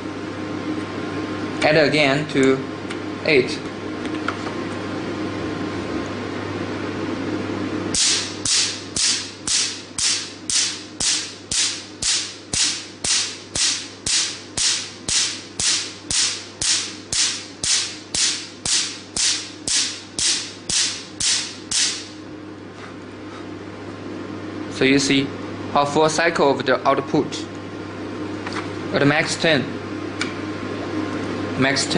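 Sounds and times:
laser pulses snapping: 7.9s - 22.2s.

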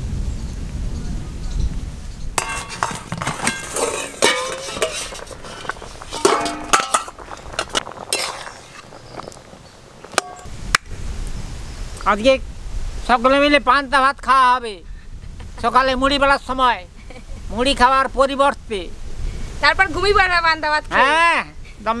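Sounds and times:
metal pots and lid clanking: 2.4s - 9.3s, 10.1s - 10.5s.

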